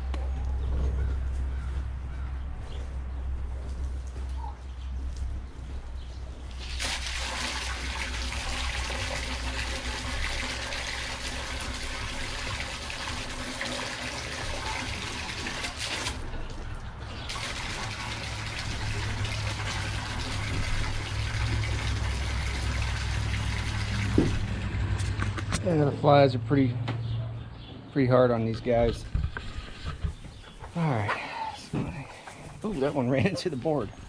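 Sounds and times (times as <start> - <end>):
hose water splashing into bucket: 6.5 - 25.5.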